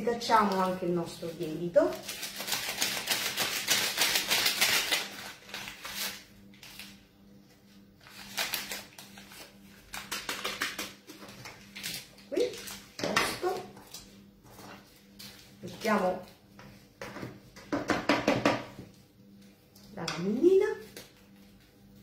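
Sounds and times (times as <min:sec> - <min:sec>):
paper sachet crinkling and tearing: 0:01.3 - 0:07.0, 0:08.0 - 0:12.9.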